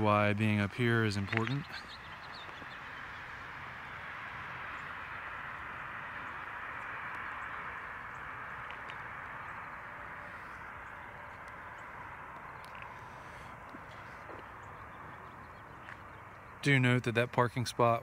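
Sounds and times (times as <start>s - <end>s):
hiss-like outdoor ambience: 0.0s - 18.0s
faint ticks: 10.6s - 14.6s.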